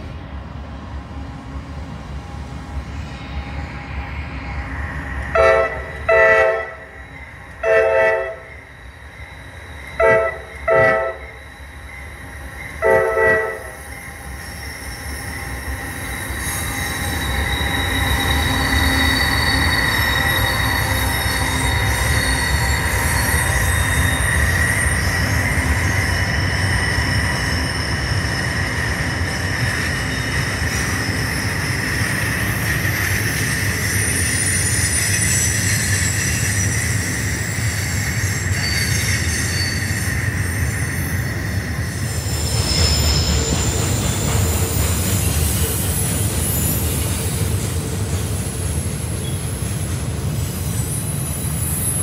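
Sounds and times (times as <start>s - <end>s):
train rumble: 0.0s - 52.0s
wheels squealing: 4.9s - 52.0s
locomotive air horn blasts: 5.4s - 6.9s, 7.6s - 8.5s, 10.0s - 11.4s, 12.8s - 13.8s.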